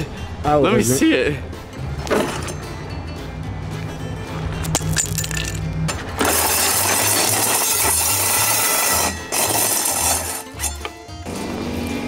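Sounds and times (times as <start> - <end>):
saw blades grinding on gravel: 6.2 - 10.9.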